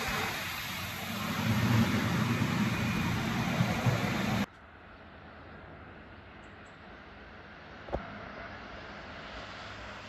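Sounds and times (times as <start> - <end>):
train engine throbbing: 0.0 - 4.5
faint outdoor background: 0.0 - 10.0
wheel and rail noise: 0.0 - 10.0.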